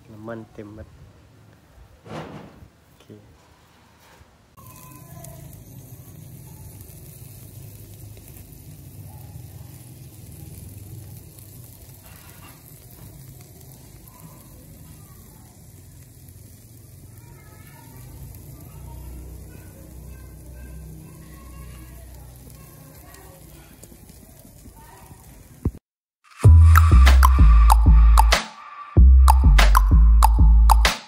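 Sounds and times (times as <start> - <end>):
birds sizzling on grill: 4.5 - 25.8
low rumble: 26.4 - 28.3.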